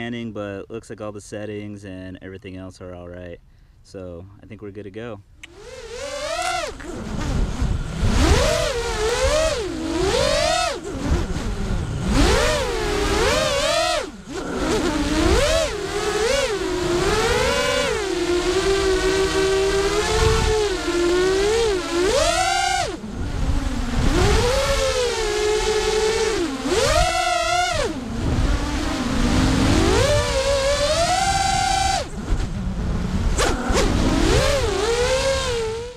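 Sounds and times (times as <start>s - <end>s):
drone motors whining: 5.4s - 35.9s
air rumble on microphone: 6.6s - 12.2s.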